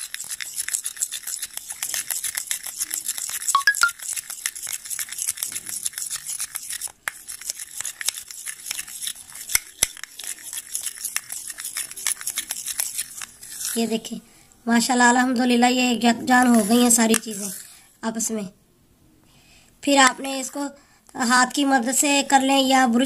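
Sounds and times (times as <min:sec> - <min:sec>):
spoon stirring paste in a bowl: 0:00.0 - 0:14.1, 0:16.3 - 0:17.8.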